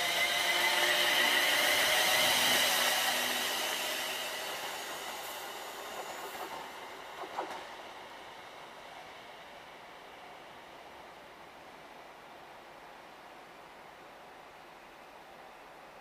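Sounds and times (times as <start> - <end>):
wheel-on-rail noise: 0.0 - 8.0
electric train whine: 0.0 - 11.7.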